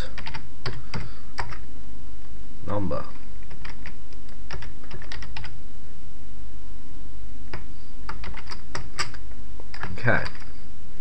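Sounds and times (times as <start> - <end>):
steady low hum: 0.0 - 11.0
keyboard typing: 0.1 - 1.6, 3.1 - 5.6, 7.5 - 10.5.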